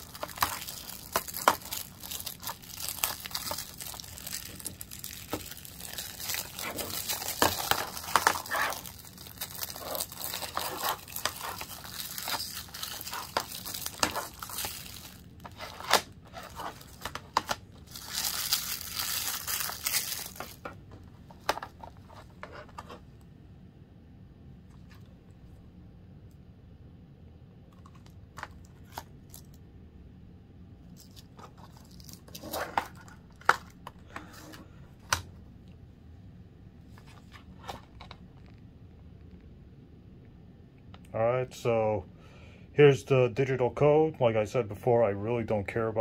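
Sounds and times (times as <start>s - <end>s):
plastic shrink-wrap crinkling: 0.0s - 20.7s, 31.0s - 33.7s.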